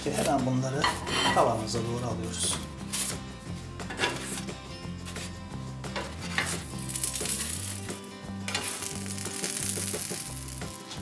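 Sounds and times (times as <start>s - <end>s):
background music with bass: 0.0s - 11.0s
spatula scraping frying pan: 0.1s - 1.6s, 3.8s - 10.7s
sizzling hiss: 6.5s - 11.0s.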